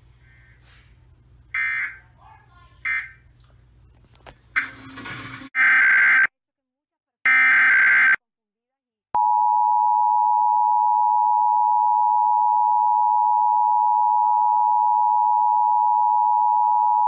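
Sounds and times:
two-tone alert alarm: 1.6s - 2.0s, 2.8s - 3.2s.

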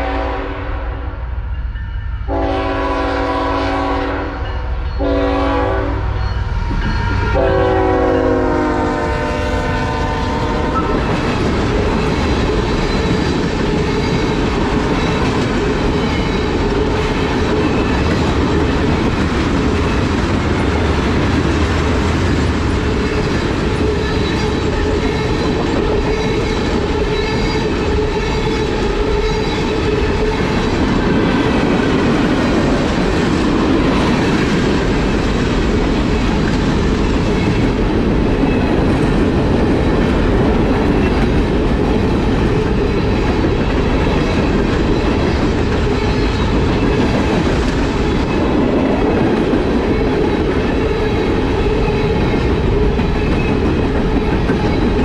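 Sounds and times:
locomotive air horn blasts: 0.0s - 1.1s, 2.3s - 6.1s, 7.3s - 10.8s
train cars rolling on rails: 1.6s - 55.0s.

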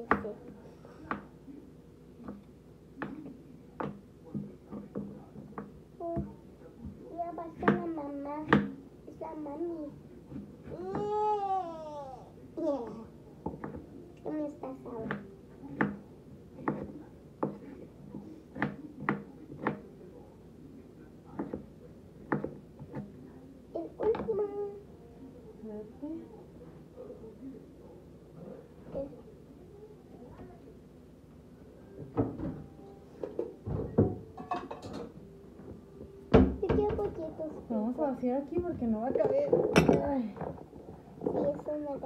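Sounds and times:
knife chopping on wooden board: 15.0s - 16.0s.

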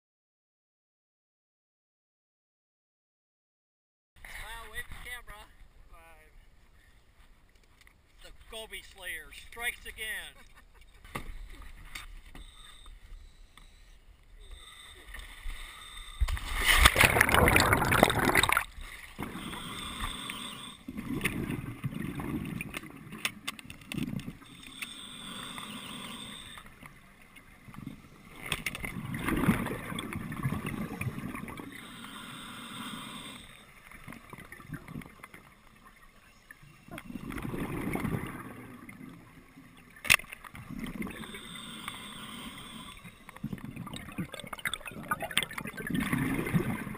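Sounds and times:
scuba regulator hissing inhale: 12.3s - 16.6s, 19.2s - 21.0s, 24.4s - 26.9s, 31.6s - 33.8s, 41.0s - 43.5s
bubbling exhale underwater: 16.0s - 23.0s, 28.9s - 33.4s, 36.9s - 39.3s, 40.6s - 46.9s.

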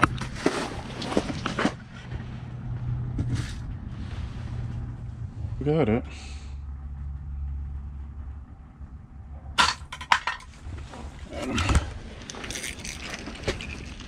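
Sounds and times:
low steady rumble: 0.0s - 14.0s
sharp clicks of gear handling: 11.4s - 14.0s.

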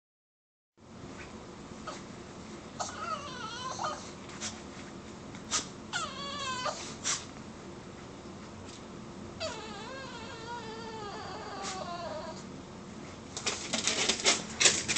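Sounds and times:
small dog crying and whining: 2.8s - 4.2s, 5.9s - 7.0s, 9.4s - 12.5s.

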